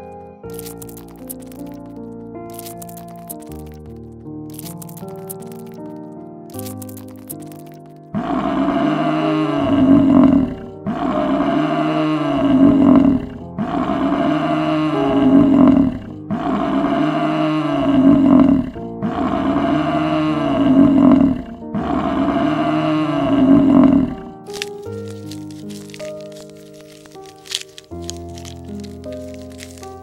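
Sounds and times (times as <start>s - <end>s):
water buffalo bellowing: 8.2s - 30.0s.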